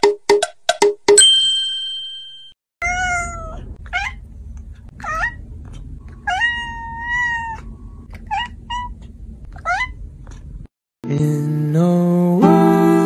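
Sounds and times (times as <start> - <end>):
cat meowing: 2.8 - 4.2, 5.0 - 5.4, 6.1 - 10.0.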